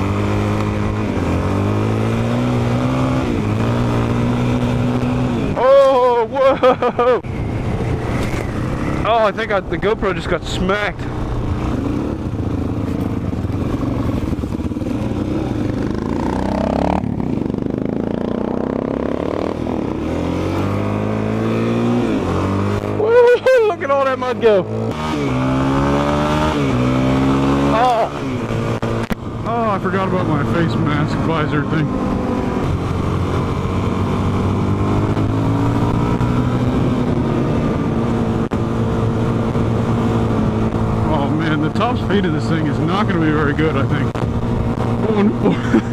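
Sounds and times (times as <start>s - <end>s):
motorcycle engine accelerating: 0.0s - 45.9s
wind rushing over microphone: 7.0s - 23.1s, 30.7s - 41.9s.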